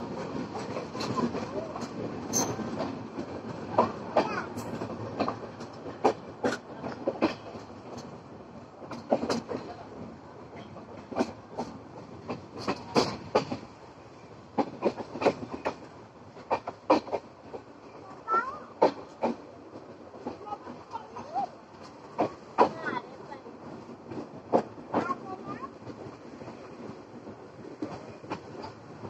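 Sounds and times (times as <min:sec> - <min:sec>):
wheels clacking over rails: 0:00.0 - 0:13.9, 0:14.5 - 0:29.0
train coach rumble: 0:00.0 - 0:29.0.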